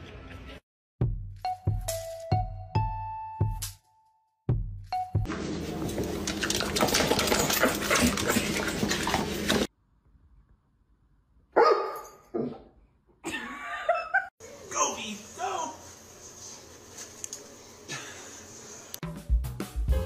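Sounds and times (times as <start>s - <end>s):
dog sounds: 6.3s - 9.7s.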